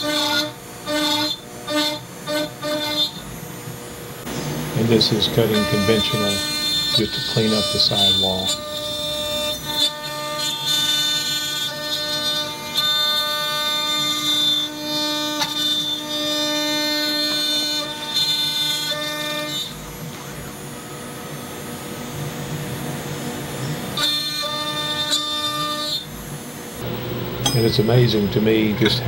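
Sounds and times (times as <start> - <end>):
shop vacuum sucking: 4.2 - 9.4
router spindle whining: 4.2 - 29.0.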